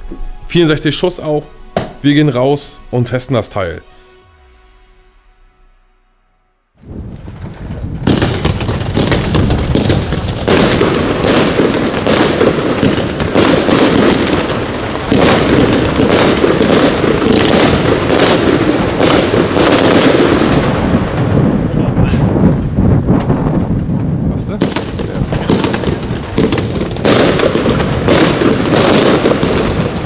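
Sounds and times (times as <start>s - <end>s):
rushing noise of bursting shells: 6.8s - 21.3s
firework shots firing: 7.1s - 30.0s.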